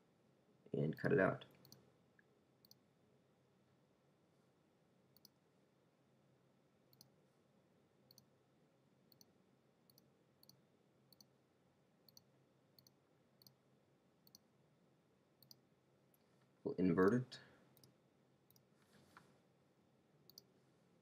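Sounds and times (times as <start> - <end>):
computer mouse clicks: 2.6 - 2.8, 5.2 - 5.4, 6.9 - 7.1, 8.1 - 8.3, 9.1 - 9.3, 9.9 - 11.3, 12.1 - 13.6, 14.2 - 14.4, 15.4 - 16.2, 20.3 - 20.5.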